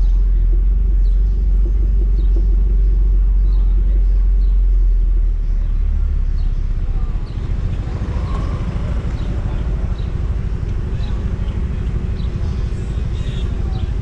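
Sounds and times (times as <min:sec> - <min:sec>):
vehicle rumble: 0:00.0 - 0:14.0.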